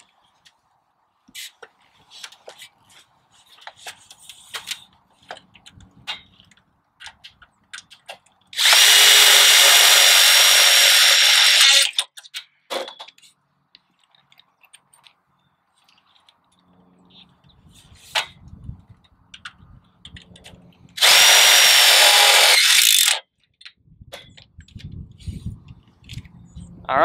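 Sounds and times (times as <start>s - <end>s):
cordless drill whining: 8.6s - 11.9s, 21.0s - 23.2s.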